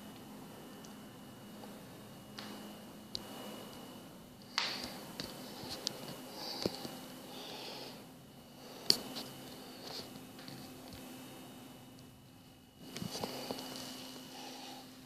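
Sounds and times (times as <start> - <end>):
faint steady high whine: 0.0 - 15.0
breathy hisses: 6.3 - 8.9, 13.1 - 15.0.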